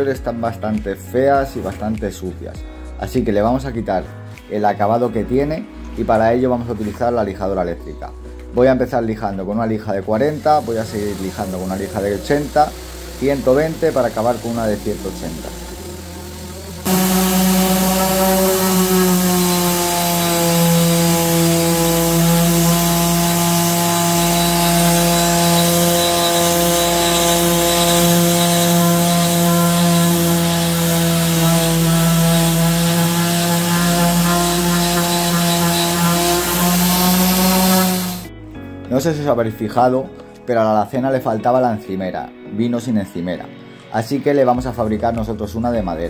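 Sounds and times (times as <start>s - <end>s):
orbital sander humming: 10.2s - 38.3s.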